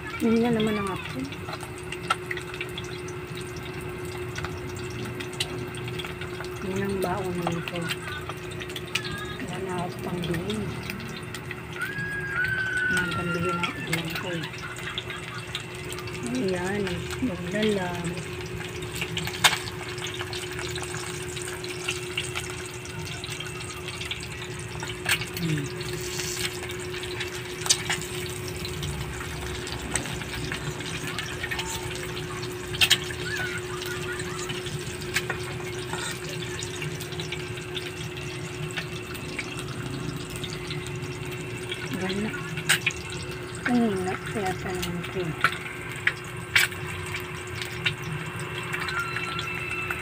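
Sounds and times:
steady hum: 0.0s - 48.8s
eggs sizzling in hot oil: 0.0s - 50.0s.

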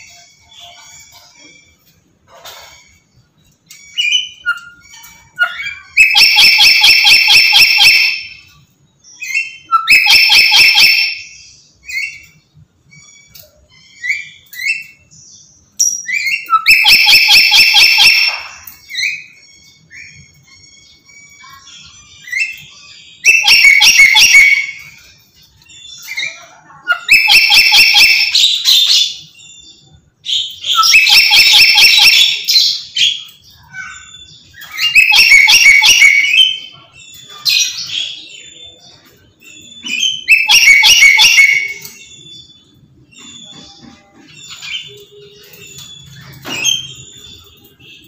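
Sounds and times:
soft bird chirps and whistles: 0.0s - 48.0s
parrot screeching harsh calls: 26.1s - 29.3s.

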